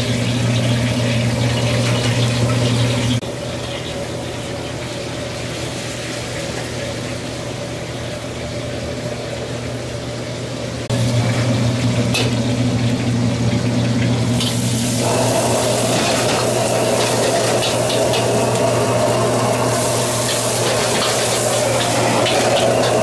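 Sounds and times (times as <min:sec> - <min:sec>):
steady mechanical hum: 0:00.0 - 0:23.0.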